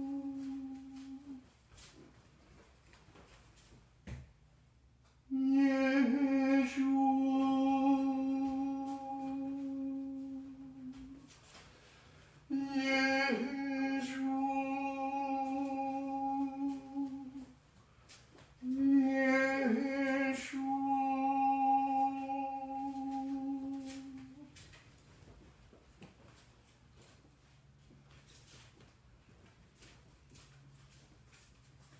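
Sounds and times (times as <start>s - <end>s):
man chanting long notes: 0.0s - 1.4s, 5.3s - 11.3s, 12.5s - 17.5s, 18.6s - 24.5s.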